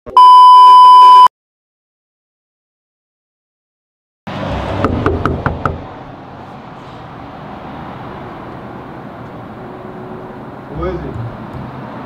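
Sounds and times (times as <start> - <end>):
knuckles knocking on door: 4.8 - 5.8.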